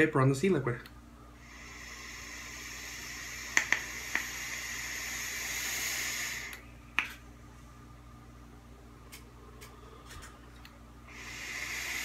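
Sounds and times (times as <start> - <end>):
e-cigarette sizzling hiss: 1.4 - 6.7, 11.1 - 12.0
sharp pops: 3.5 - 4.3.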